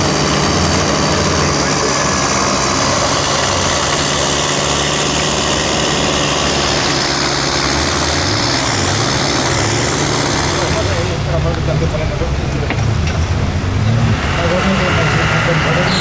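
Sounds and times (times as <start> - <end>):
suv engine running at low revs: 0.0 - 16.0.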